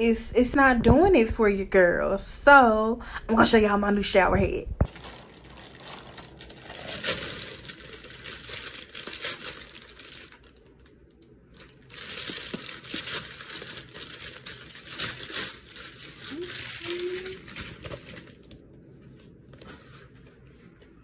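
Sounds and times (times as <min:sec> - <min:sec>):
plastic mailer bag crinkling and tearing: 0:04.8 - 0:19.4.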